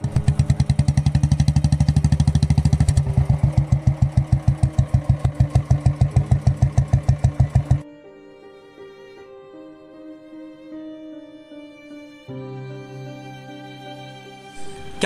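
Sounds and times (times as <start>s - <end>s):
motorcycle engine idling: 0.0s - 7.8s.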